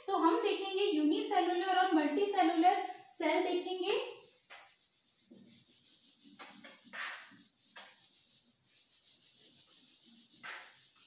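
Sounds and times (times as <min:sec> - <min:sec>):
palm wiping whiteboard: 0:03.6 - 0:11.0.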